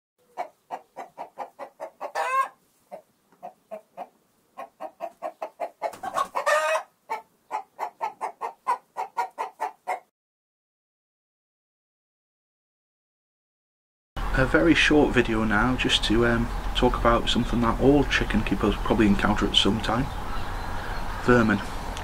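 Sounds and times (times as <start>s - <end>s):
chicken clucking: 0.2s - 10.1s
chicken squawk: 0.2s - 10.1s.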